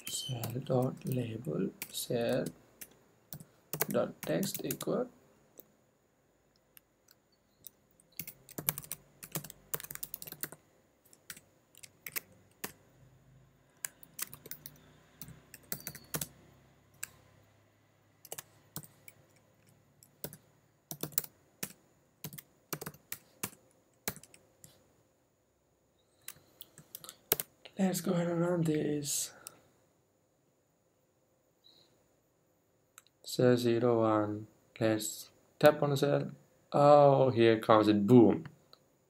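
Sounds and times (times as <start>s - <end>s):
typing on a keyboard: 1.8s - 4.9s, 7.1s - 12.8s, 13.8s - 16.3s, 18.2s - 19.2s, 20.2s - 24.4s.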